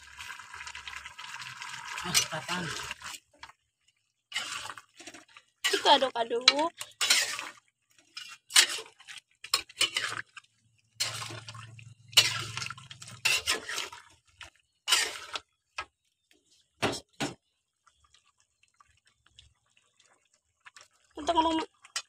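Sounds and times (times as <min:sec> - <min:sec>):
metal spatula scraping wok: 0:04.3 - 0:10.4, 0:11.0 - 0:14.2, 0:14.8 - 0:15.4.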